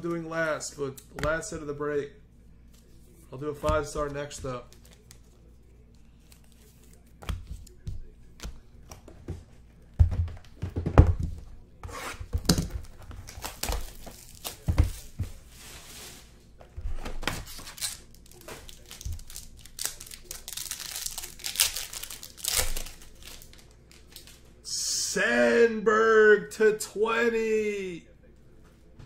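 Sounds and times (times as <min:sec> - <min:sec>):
boxes knocking on table: 0:10.0 - 0:11.4
plastic wrapping tearing and crinkling: 0:17.4 - 0:24.4.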